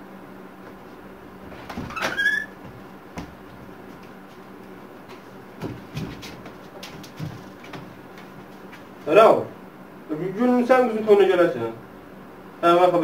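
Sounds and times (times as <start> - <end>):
wooden door squeaking: 1.5 - 2.8.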